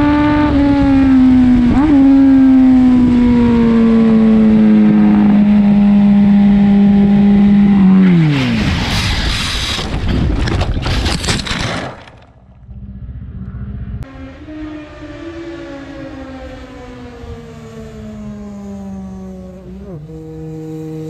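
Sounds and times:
steady droning falling in pitch: 12.6s - 21.0s.

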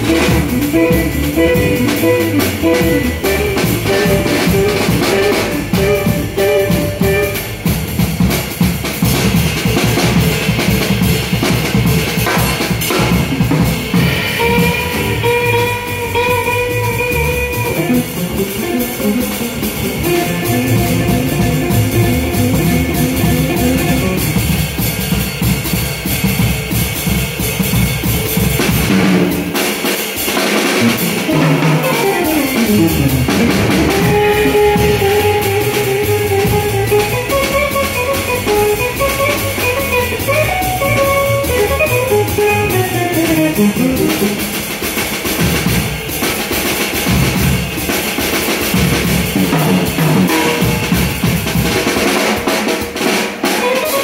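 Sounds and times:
electric guitar: 0.0s - 7.7s, 13.9s - 24.5s, 30.8s - 44.7s, 53.4s - 54.0s
double bass: 0.0s - 29.6s, 30.6s - 46.0s, 48.8s - 51.8s
drum kit with cymbals: 0.0s - 54.0s.

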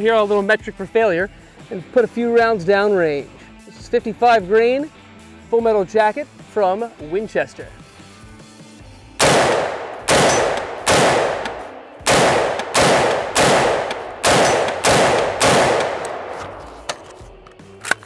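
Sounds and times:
gunshots with echo: 9.2s - 16.9s.

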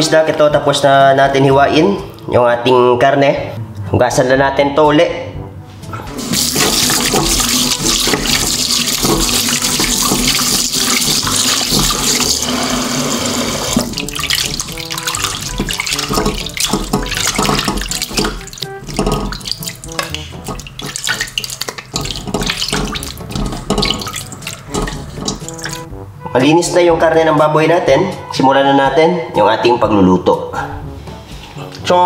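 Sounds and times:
water splashing and trickling: 5.9s - 25.9s
tap water running into metal bowl: 6.1s - 25.9s
hands sloshing meat in water: 6.2s - 12.6s, 13.7s - 25.9s.

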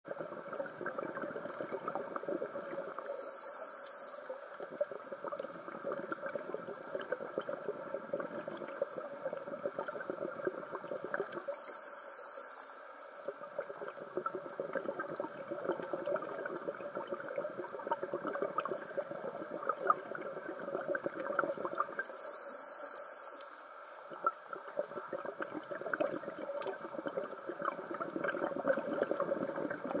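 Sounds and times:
bubbly underwater crackling: 0.1s - 11.9s, 12.9s - 30.0s
short high hiss: 3.1s - 4.3s, 11.5s - 12.9s, 22.2s - 23.7s.

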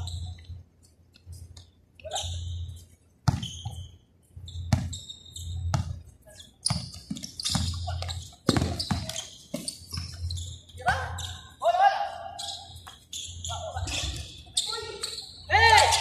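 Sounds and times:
basketball bouncing on hard court: 3.2s - 3.8s, 4.6s - 5.0s, 5.7s - 6.0s, 6.7s - 10.2s.

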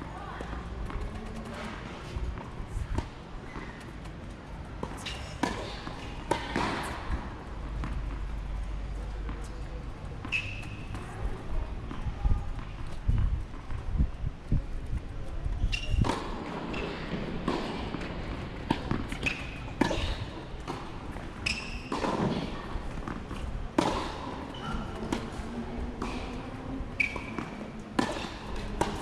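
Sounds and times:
tennis balls struck by rackets: 4.7s - 9.4s, 15.8s - 26.4s, 27.0s - 29.0s
tennis balls bouncing on hard court: 4.8s - 13.8s, 15.7s - 26.4s, 27.0s - 29.0s.

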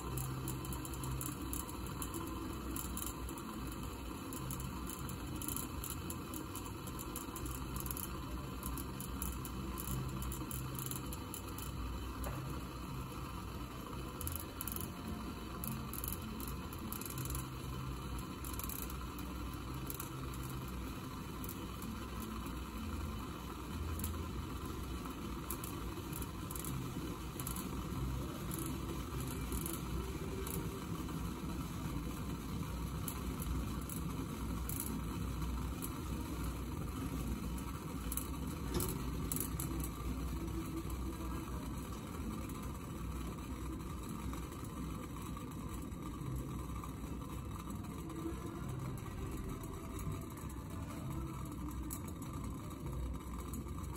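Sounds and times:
small ticks: 0.0s - 12.4s, 14.2s - 31.0s, 32.6s - 36.6s
coffee maker water bubbling: 0.0s - 53.9s.

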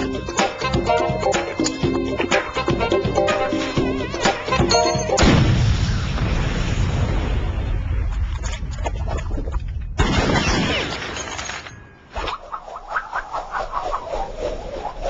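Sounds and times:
explosion rumble: 5.2s - 10.8s.

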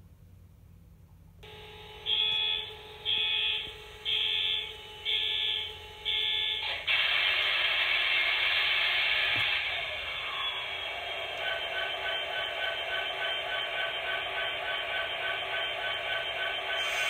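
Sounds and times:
electronic alarm beeps: 1.5s - 6.6s, 10.3s - 17.0s
diesel engine start-up rush: 6.6s - 17.0s.

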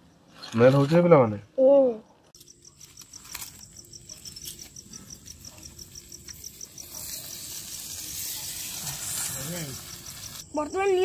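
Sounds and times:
cricket chirping: 1.6s - 11.0s
stick scraping and tapping in coals: 2.3s - 10.7s.

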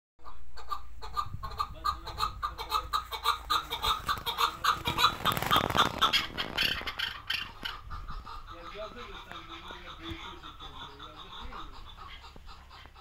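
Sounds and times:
partridge clucking calls: 0.2s - 13.0s.

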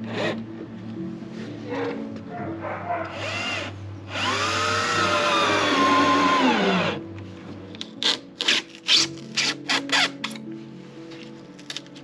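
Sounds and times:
quiet background music: 0.0s - 12.0s
cordless drill running: 3.2s - 7.0s.

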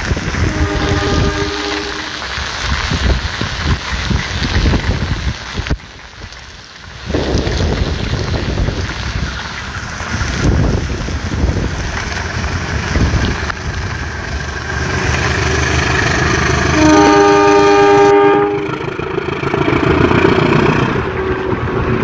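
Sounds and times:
wind buffeting microphone: 0.0s - 1.6s, 2.3s - 5.8s, 7.0s - 16.8s, 18.9s - 22.0s
heavy rain: 0.0s - 22.0s
locomotive horn blast: 0.3s - 2.4s, 14.7s - 18.9s, 20.9s - 22.0s.

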